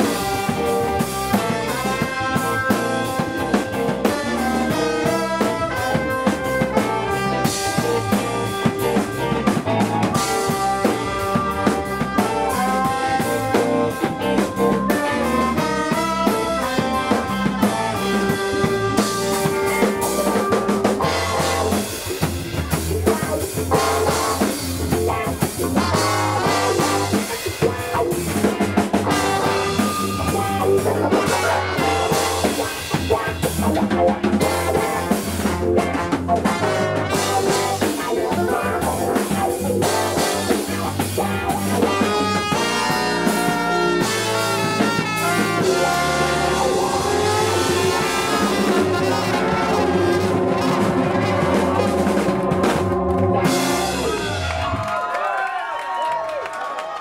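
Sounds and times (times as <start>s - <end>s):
guitar: 0.0s - 54.9s
trumpet horn section: 0.0s - 54.9s
keyboard: 0.0s - 55.1s
drum kit: 0.0s - 55.4s
bass: 0.0s - 57.0s.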